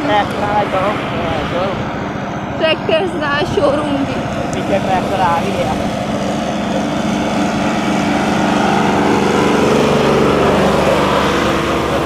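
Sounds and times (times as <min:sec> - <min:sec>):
diesel tractor engine: 0:00.0 - 0:12.0
motorcycle engine running: 0:02.5 - 0:12.0.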